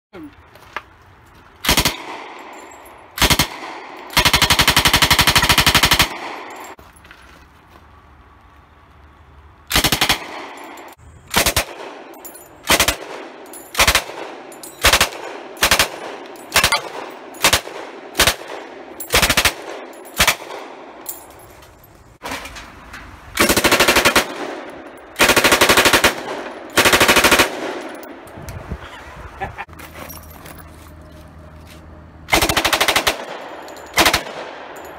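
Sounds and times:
submachine gun firing bursts: 1.7 - 2.2, 3.2 - 6.4, 9.7 - 10.4, 12.7 - 13.2, 13.8 - 20.6, 23.4 - 24.6, 25.2 - 27.8, 32.3 - 33.4, 34.0 - 34.5.

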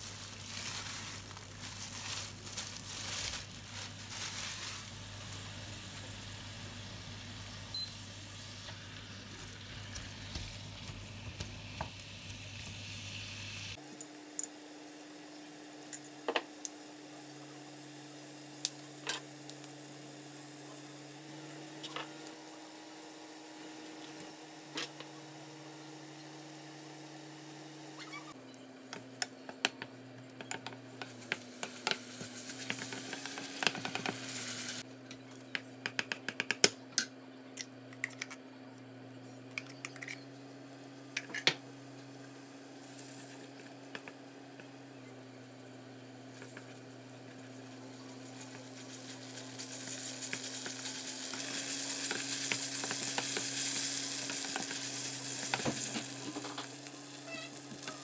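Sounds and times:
meat sizzling in a frying pan: 31.4 - 34.8, 47.9 - 58.0.

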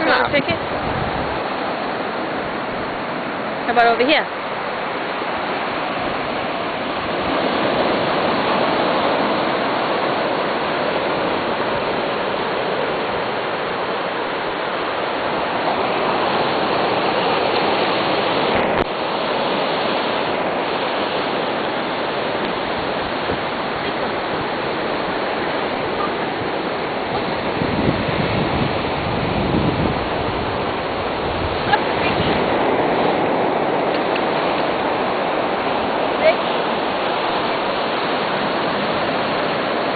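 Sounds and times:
surf breaking on sandy beach: 0.0 - 39.9.

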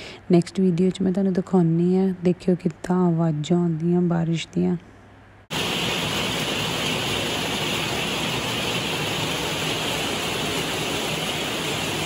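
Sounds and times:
heavy rain pouring: 5.5 - 12.0.

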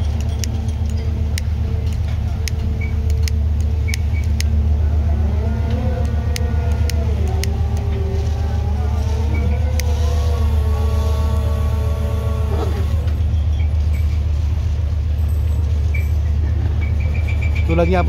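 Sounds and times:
sharp clicks and knocks: 0.0 - 4.6
ship engine and machinery drone: 0.0 - 18.0.

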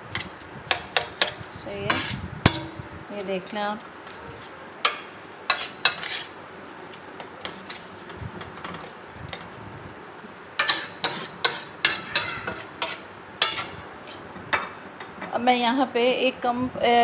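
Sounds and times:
metal spatula clanking and scraping: 0.1 - 2.9, 4.8 - 6.4, 10.6 - 13.8.

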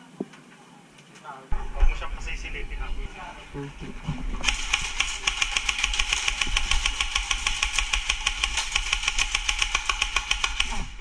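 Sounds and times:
steady whine: 1.5 - 9.2
airsoft rifle full-auto burst: 4.4 - 11.0.

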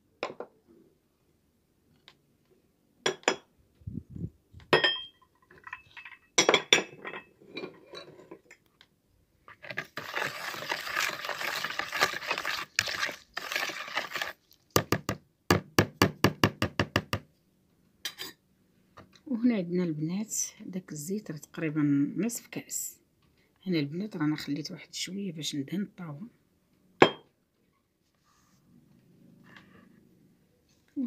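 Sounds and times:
spoon stirring in a bowl: 9.5 - 14.9.

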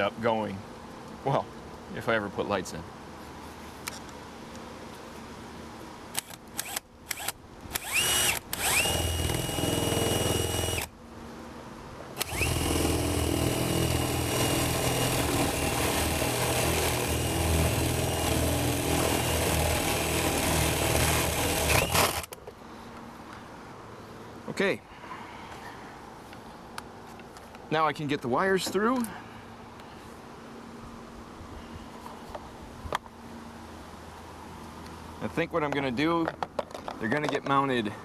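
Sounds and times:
cordless drill whining: 6.2 - 10.9, 12.2 - 22.3
drill bit cutting rumble: 7.8 - 10.9, 12.2 - 22.2.

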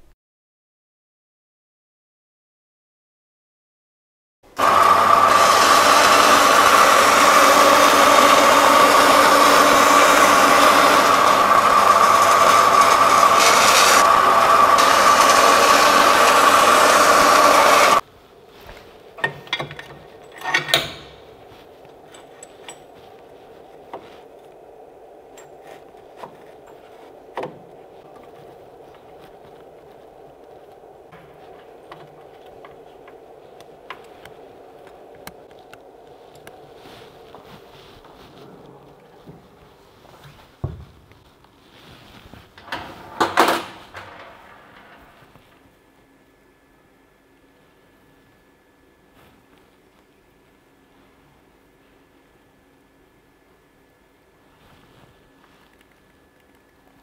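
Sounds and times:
bandsaw cutting metal sheet: 4.6 - 18.0
faint steady hum: 18.0 - 57.0.

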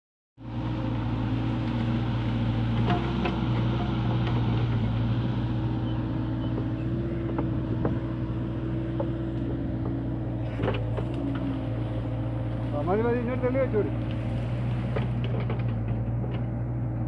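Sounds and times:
diesel excavator engine droning: 0.4 - 17.0.

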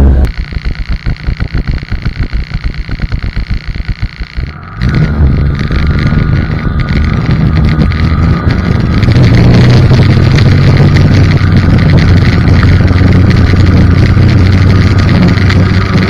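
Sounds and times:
snowmobile engine: 0.0 - 16.0
wind on microphone: 4.8 - 16.0.

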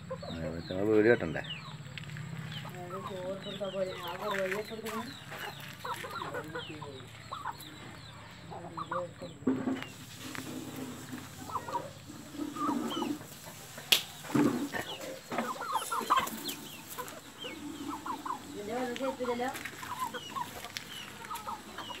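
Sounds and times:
chickens clucking: 0.0 - 22.0
high-pitched chicken calls: 9.9 - 22.0.

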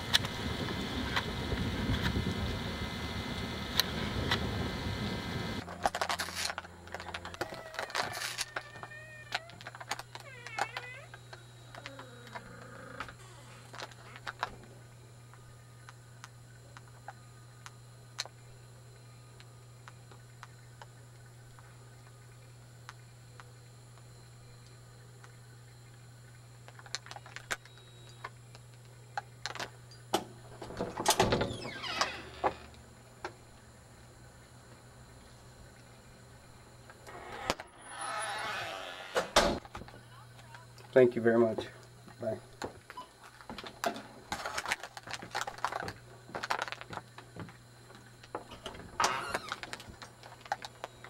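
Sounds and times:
faint electrical hum: 0.0 - 51.0
camcorder handling noise: 5.6 - 12.4
sliding screen door rattling open: 30.5 - 32.7, 37.1 - 39.6, 48.6 - 49.8.

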